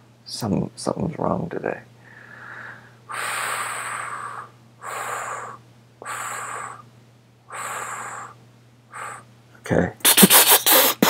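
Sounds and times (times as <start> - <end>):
man breathing heavily: 2.0 - 6.9, 7.5 - 9.3.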